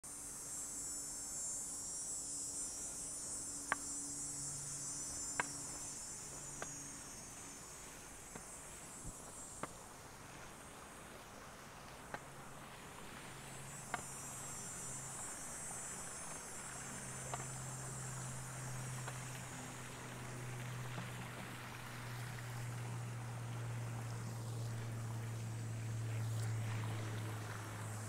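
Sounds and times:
cicadas buzzing: 0:00.0 - 0:28.0
steady low hum: 0:00.0 - 0:28.0
sharp single ticks: 0:03.6 - 0:04.1, 0:05.2 - 0:05.9.

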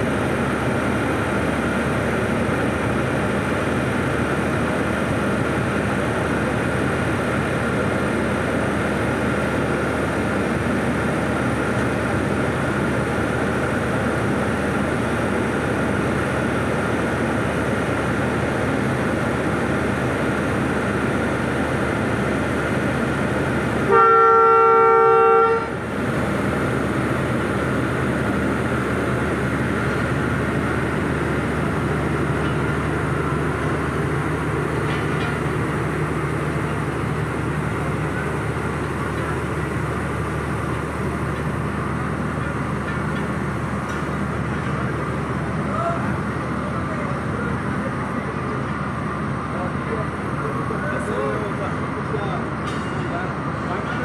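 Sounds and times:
diesel locomotive running: 0:00.0 - 0:54.0
multi-tone train horn blast: 0:23.8 - 0:25.8.

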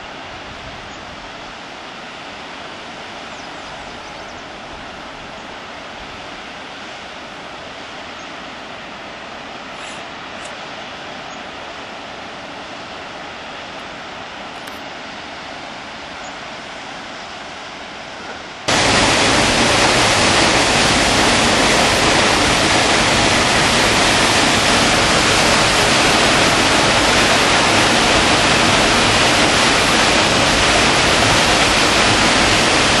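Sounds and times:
waterfall rushing: 0:18.6 - 0:33.0.

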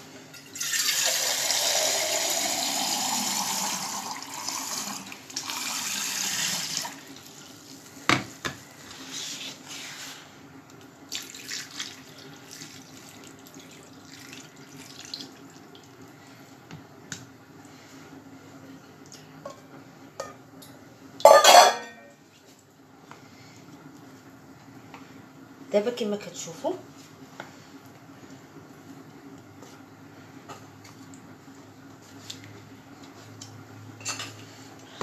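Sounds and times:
water running into pot: 0:00.4 - 0:07.6, 0:11.1 - 0:16.0.

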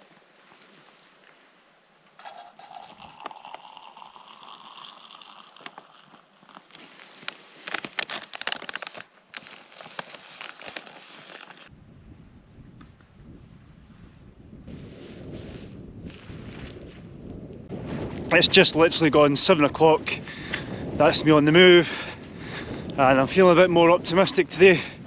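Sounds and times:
hot water pouring into vessel: 0:02.2 - 0:06.7
plastic bag crinkling: 0:02.2 - 0:11.7
wind buffeting microphone: 0:11.7 - 0:25.0.

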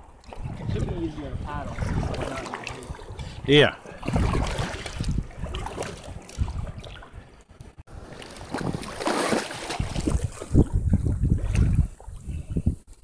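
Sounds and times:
water lapping: 0:00.0 - 0:12.6
wind buffeting microphone: 0:00.0 - 0:13.0
body splashing into water: 0:04.0 - 0:07.0, 0:08.1 - 0:10.6.

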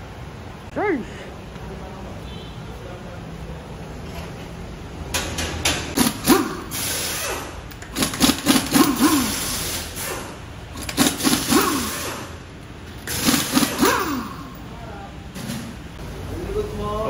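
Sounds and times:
pneumatic impact wrench rattling: 0:05.1 - 0:14.7.

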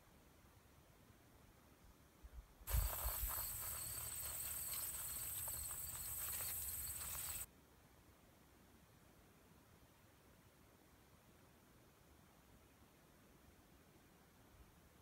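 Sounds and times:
field insects trilling: 0:02.7 - 0:07.5
soil rustling through wire sifter: 0:02.7 - 0:07.5.

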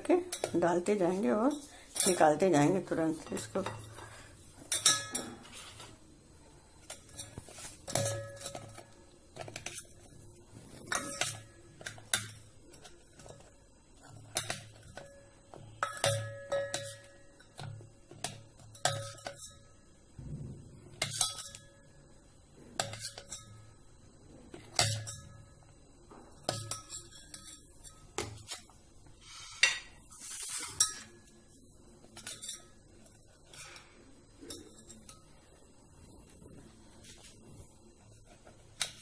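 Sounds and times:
steel spoon clinking on metal bowl: 0:04.6 - 0:05.6, 0:10.9 - 0:17.7, 0:26.3 - 0:28.6, 0:34.4 - 0:35.4.

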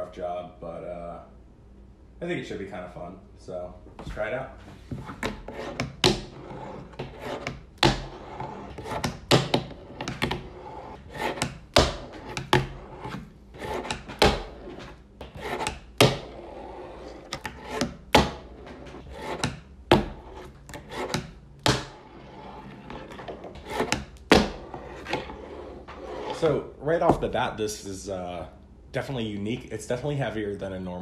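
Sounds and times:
fingerboard wheels rolling on wood: 0:05.0 - 0:26.4.

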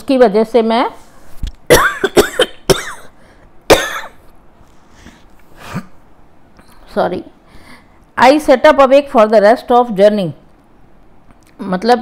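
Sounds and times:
woman coughing: 0:01.7 - 0:04.2.

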